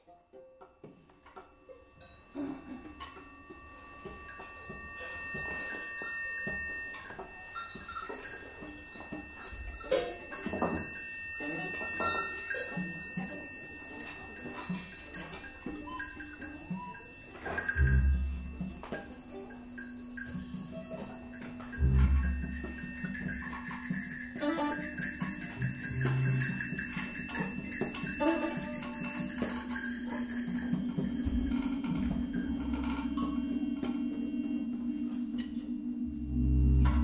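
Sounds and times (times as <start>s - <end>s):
held high tones: 2.0s - 37.0s.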